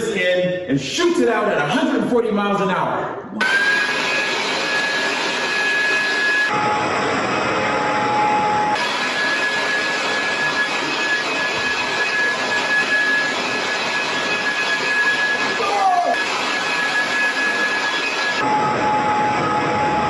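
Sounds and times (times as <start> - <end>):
leaf blower motor whine: 3.4 - 18.6.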